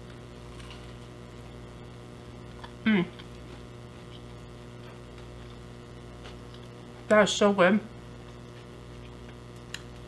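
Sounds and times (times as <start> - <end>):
electrical mains hum: 0.0 - 10.0
woman humming with mouth full: 2.8 - 3.2.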